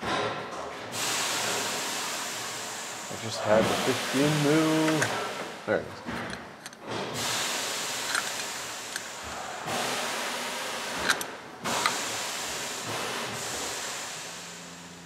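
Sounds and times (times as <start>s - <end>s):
wrench ratcheting: 8.0s - 9.1s, 11.0s - 12.0s.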